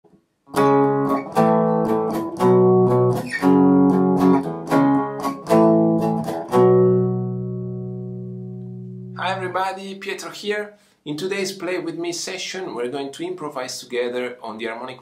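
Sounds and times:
electric guitar strumming chords: 0.5 - 9.6.

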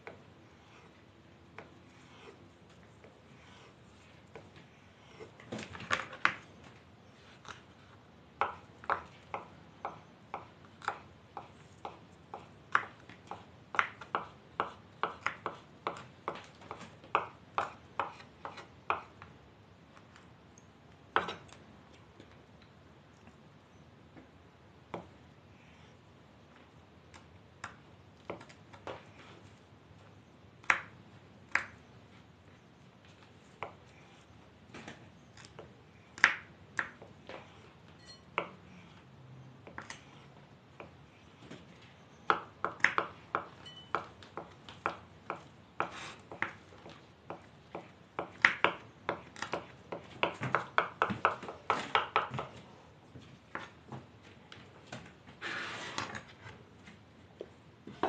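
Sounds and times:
knives chopping on wooden boards: 8.4 - 19.2, 35.4 - 37.5, 42.3 - 52.6.

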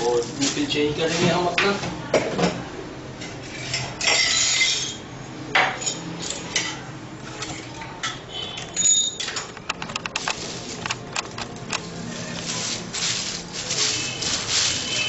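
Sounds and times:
kitchen utensils clinking: 3.2 - 15.0.

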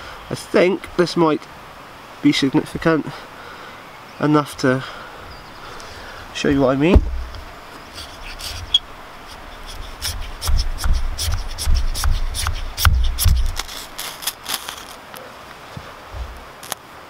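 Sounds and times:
knife scraping bark: 5.6 - 15.0
dull knocks on log: 6.5 - 8.7, 9.6 - 13.7
ferro rod struck with knife: 6.9 - 7.4, 9.6 - 13.7.

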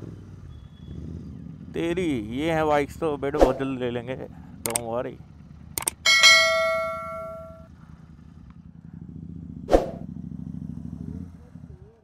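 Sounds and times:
motorcycle engine idling: 0.0 - 12.0
sharp clack: 5.8 - 7.6
bell-like ding: 5.9 - 7.7.

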